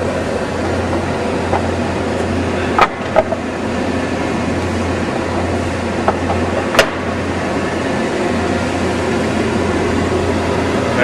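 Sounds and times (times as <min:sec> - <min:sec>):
machine hum: 0:00.0 - 0:11.0.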